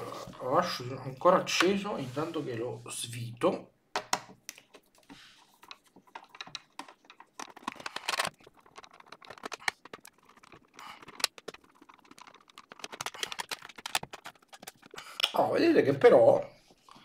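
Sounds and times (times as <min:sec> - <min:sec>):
screwdriver clicking and scraping: 0:05.7 - 0:15.2.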